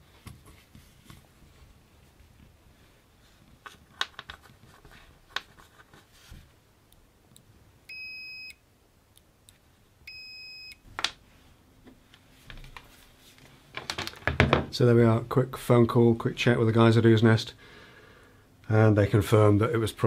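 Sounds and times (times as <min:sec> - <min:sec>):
high tester beep: 0:07.9 - 0:08.6, 0:10.1 - 0:10.8.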